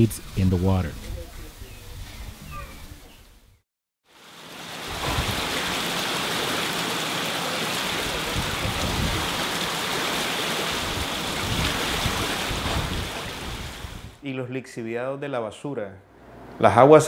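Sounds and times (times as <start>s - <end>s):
wastewater rushing and churning: 4.1s - 14.2s.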